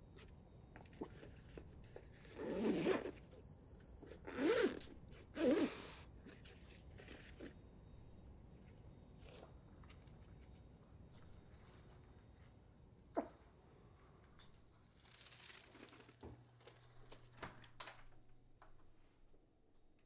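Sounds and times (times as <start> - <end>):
zipper rasping: 2.2 - 3.2, 4.1 - 6.1.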